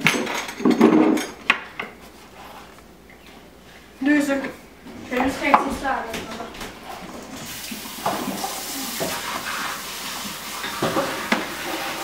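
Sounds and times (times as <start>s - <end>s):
tap running into sink: 7.6s - 12.0s.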